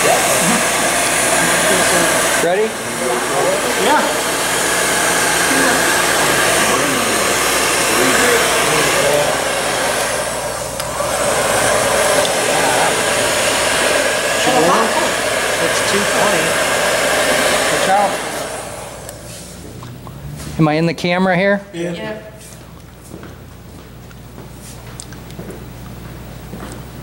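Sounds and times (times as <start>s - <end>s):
heat gun blowing air: 0.0s - 19.6s.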